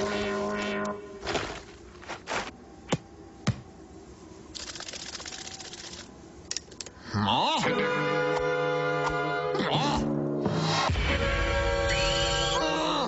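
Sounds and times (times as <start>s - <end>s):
background music: 7.6s - 13.0s.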